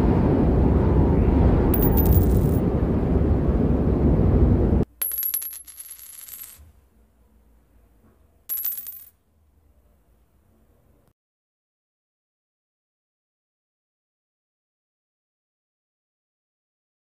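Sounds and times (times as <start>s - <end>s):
loud low rumbling: 0.0s - 4.9s
coins clinking: 1.8s - 2.6s, 5.0s - 6.7s, 8.5s - 9.2s.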